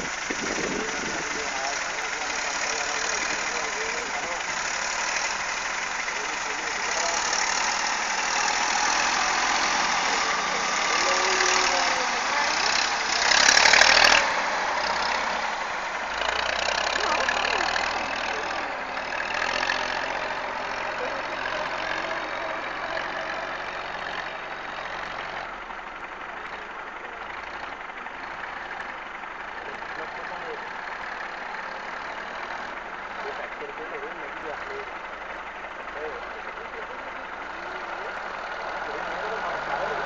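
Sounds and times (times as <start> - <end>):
tractor engine running: 0.0 - 40.0.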